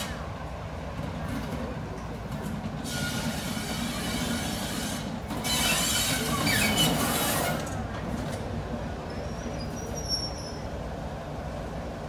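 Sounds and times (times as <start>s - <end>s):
steel wheels squealing on track: 2.8s - 7.8s, 9.0s - 10.8s.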